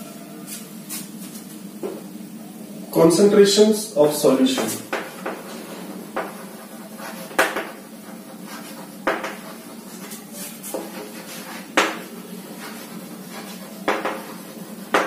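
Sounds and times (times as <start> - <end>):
steady low hum: 0.0 - 15.0
chalk tapping on chalkboard: 4.6 - 15.0.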